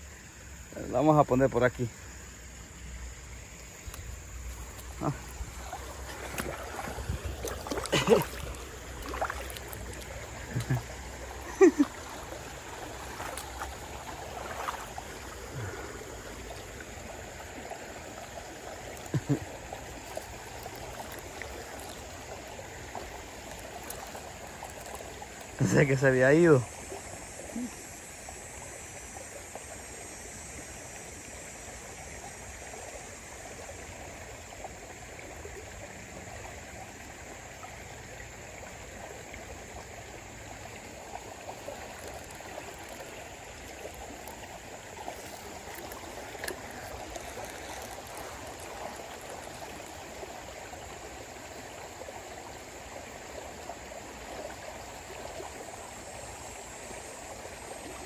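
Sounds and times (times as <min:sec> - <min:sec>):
river rushing: 0:02.6 - 0:27.6, 0:39.5 - 0:58.0
faint ticks: 0:03.6 - 0:05.4, 0:13.1 - 0:13.8, 0:22.9 - 0:25.6, 0:41.5 - 0:50.1.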